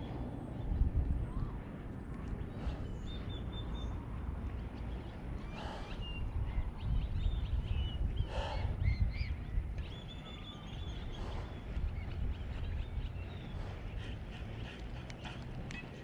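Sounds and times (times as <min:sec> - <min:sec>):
wind rumble on microphone: 0:00.0 - 0:16.0
birds chirping and whistling: 0:04.7 - 0:16.0
harsh bird calls: 0:04.9 - 0:16.0.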